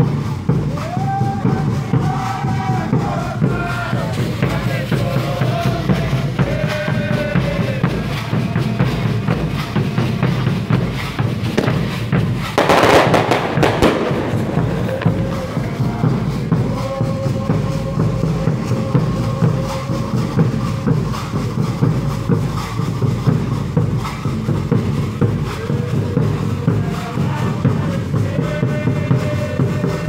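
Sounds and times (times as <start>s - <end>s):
drums beating: 0.0s - 30.0s
voices singing: 0.0s - 30.0s
loud rushing burst of noise: 11.4s - 16.8s.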